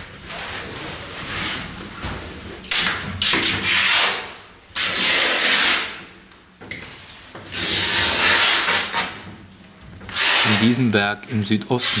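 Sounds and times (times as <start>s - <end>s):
canvas tearing by hand: 2.7s - 6.0s, 7.5s - 9.2s, 10.1s - 10.8s, 11.8s - 12.0s.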